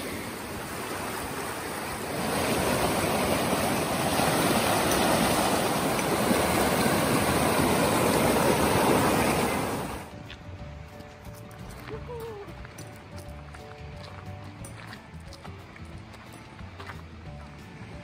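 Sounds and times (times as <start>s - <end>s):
stream rushing over rocks: 0.0s - 10.1s.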